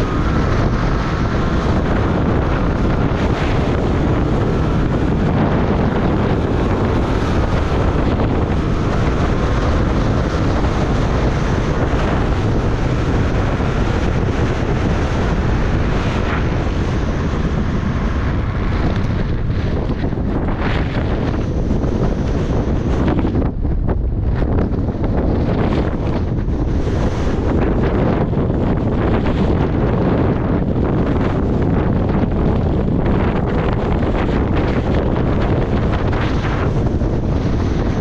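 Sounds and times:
snowmobile engine running: 0.0 - 38.0
wind buffeting microphone: 0.0 - 38.0.

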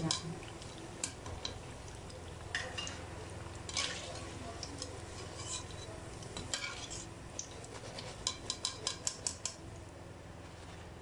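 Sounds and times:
metal spoon scraping and tapping pan: 2.5 - 3.0, 3.7 - 9.6.

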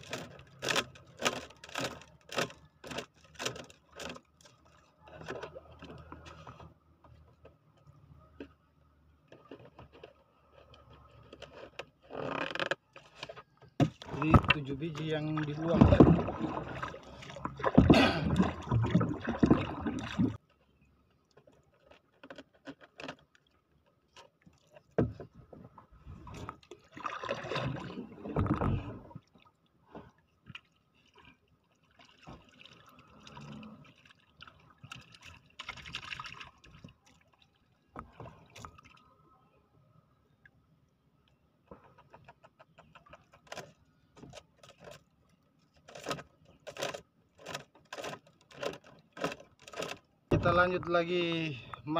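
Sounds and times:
water lapping around boat hull: 0.0 - 51.9
paddle stirring water: 9.3 - 39.2, 41.6 - 51.9
loud water splash: 15.4 - 20.4.

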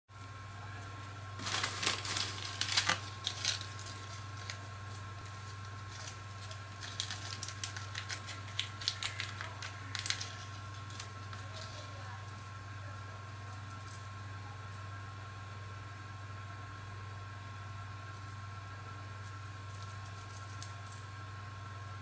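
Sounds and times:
steady low hum: 0.1 - 22.0
plastic packaging crinkling: 1.4 - 12.4, 19.6 - 21.1.

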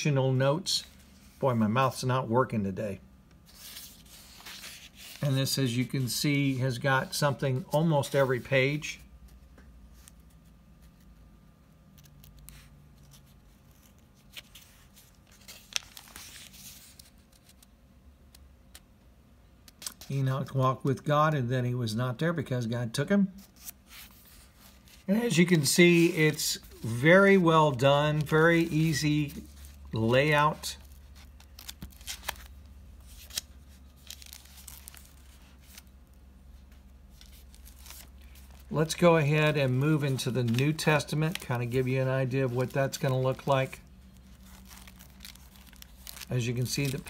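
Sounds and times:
thin pages rustling and clicking: 11.9 - 17.7, 30.8 - 35.9, 37.1 - 38.7, 40.0 - 43.6, 44.2 - 47.0.

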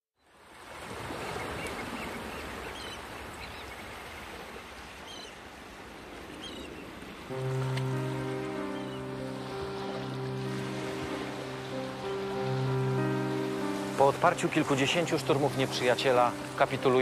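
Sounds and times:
water rushing and splashing: 0.4 - 17.0
sustained music chord: 7.3 - 17.0.

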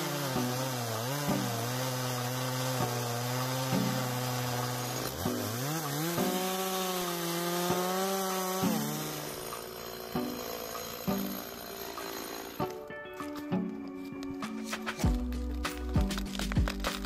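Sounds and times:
chainsaw cutting wood: 0.0 - 17.0.

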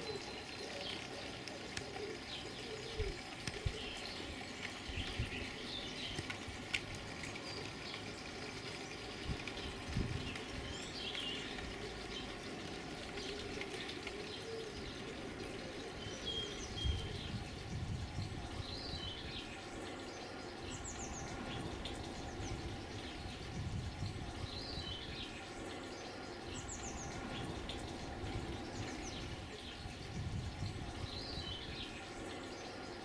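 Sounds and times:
birds singing: 0.0 - 33.0.

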